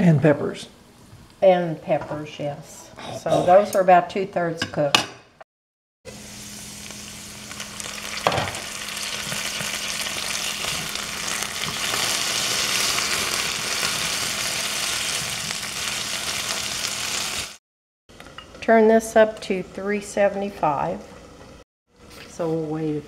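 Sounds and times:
potatoes sizzling in a skillet: 6.1s - 17.6s.

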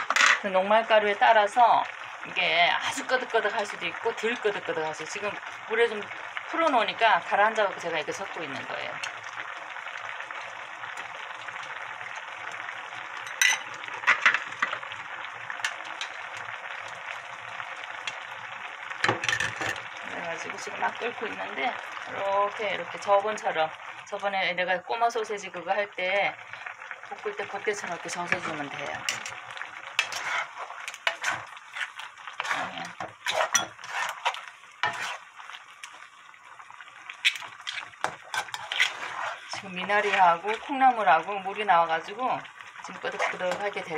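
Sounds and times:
sizzling hiss from pan: 0.0s - 43.9s
wooden spatula scraping pan: 28.2s - 29.4s, 30.0s - 35.3s, 37.6s - 40.6s, 43.1s - 43.7s.

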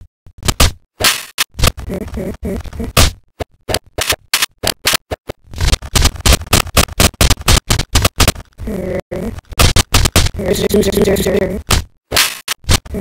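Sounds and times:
stuttering audio snippets: 1.5s - 13.0s.

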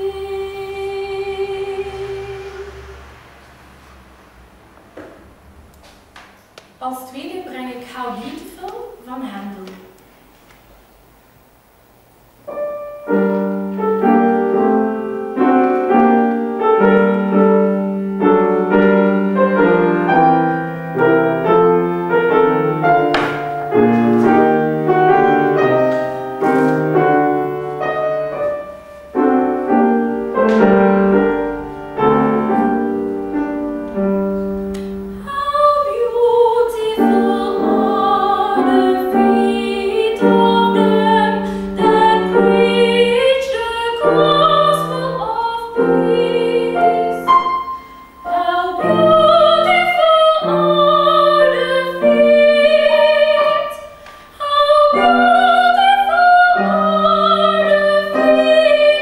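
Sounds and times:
woman singing with vibrato: 0.0s - 3.2s, 35.1s - 59.0s
grand piano classical accompaniment: 12.4s - 59.0s.

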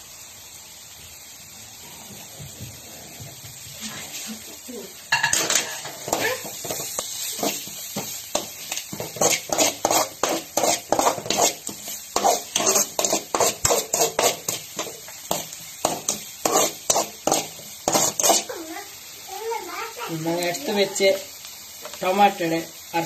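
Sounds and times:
food frying in oil: 0.0s - 23.0s
ladle scraping metal wok: 5.1s - 18.5s.

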